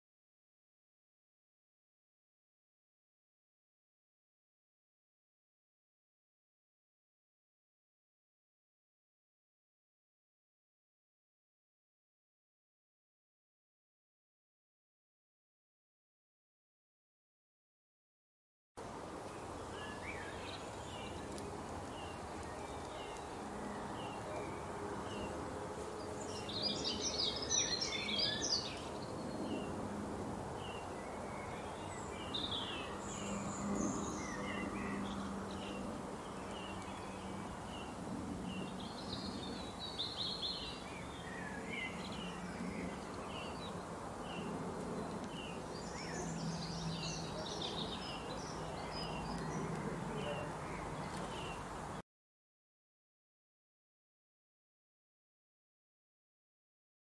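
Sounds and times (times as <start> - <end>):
songbirds chirping and twittering: 18.8 - 52.0.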